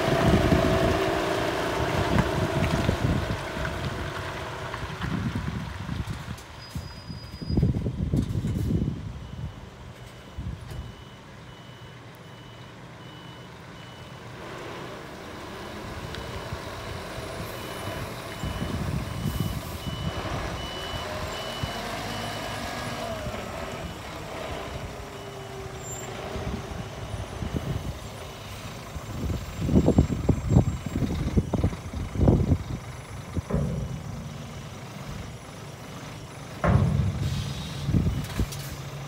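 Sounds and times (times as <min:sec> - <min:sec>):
diesel engine running: 0:00.0 - 0:06.3, 0:13.7 - 0:39.0
truck back-up alarm beeping: 0:06.6 - 0:39.0.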